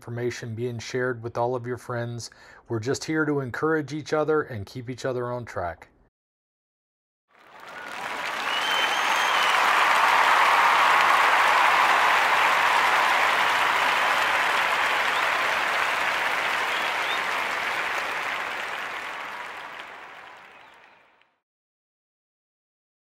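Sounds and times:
crowd applause: 0:07.4 - 0:21.2
whistle: 0:07.5 - 0:18.3, 0:19.8 - 0:21.2.

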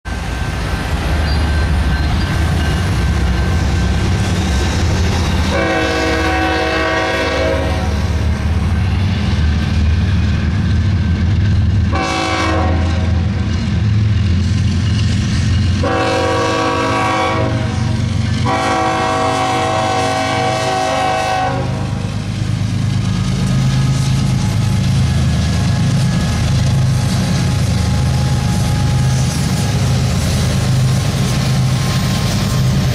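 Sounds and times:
diesel engines rumbling: 0:00.1 - 0:32.9
locomotive air horn blasts: 0:05.4 - 0:08.0, 0:11.9 - 0:13.4, 0:15.8 - 0:22.2.

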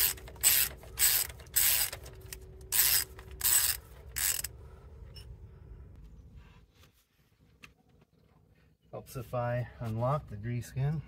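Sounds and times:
socket ratchet clicking: 0:00.0 - 0:04.5.

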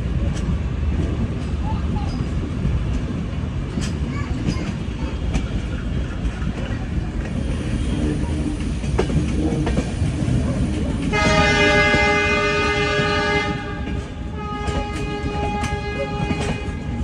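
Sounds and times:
moving train rumble: 0:00.0 - 0:17.0
wheel clacks over rail joints: 0:00.2 - 0:17.0
train horn blast: 0:11.1 - 0:17.0.

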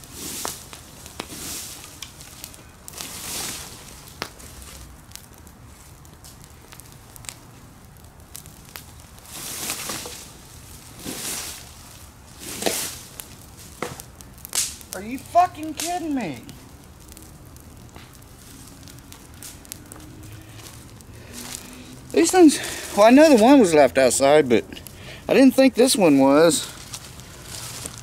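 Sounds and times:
rake scraping dry leaves: 0:00.0 - 0:04.8, 0:09.2 - 0:14.0, 0:19.4 - 0:23.8, 0:25.8 - 0:28.0
crackling fire: 0:00.0 - 0:28.0.

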